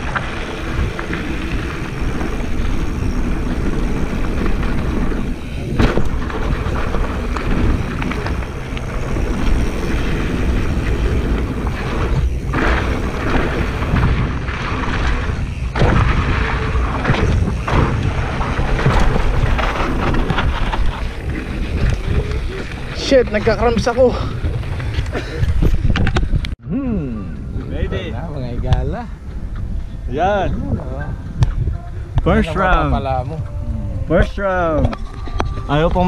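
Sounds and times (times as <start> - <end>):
bike knocking over bumps: 0.0 - 26.4
tyres rolling over loose dirt: 0.0 - 26.5
wind buffeting microphone: 0.0 - 36.0.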